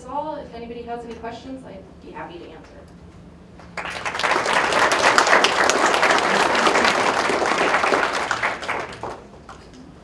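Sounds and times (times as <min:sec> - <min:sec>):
audience applauding: 0:03.6 - 0:09.8.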